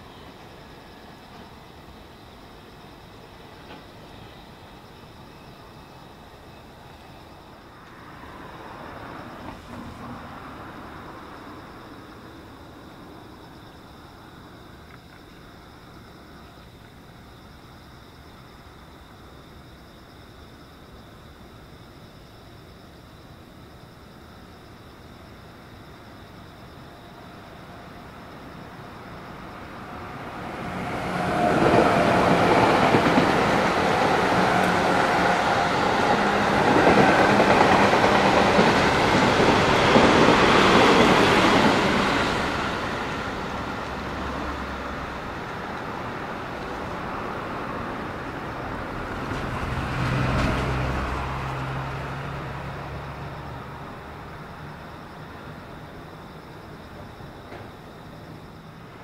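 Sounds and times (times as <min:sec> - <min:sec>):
electric train passing: 0:00.0 - 0:20.0, 0:23.8 - 0:59.0
wheels clattering on rails: 0:30.9 - 0:45.8, 0:48.1 - 0:51.6.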